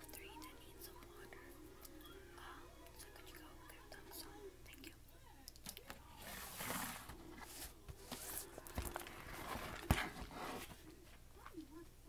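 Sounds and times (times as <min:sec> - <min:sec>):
paper booklet rustling: 0:06.2 - 0:11.6.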